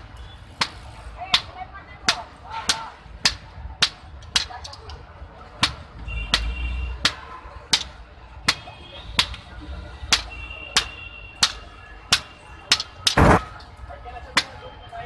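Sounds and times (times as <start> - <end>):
loud metal crash: 13.2 - 13.4.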